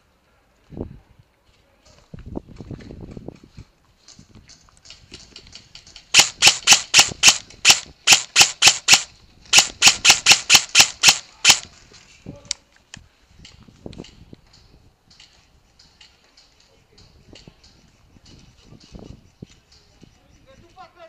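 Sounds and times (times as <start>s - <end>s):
airsoft gun shots: 6.1s - 11.7s.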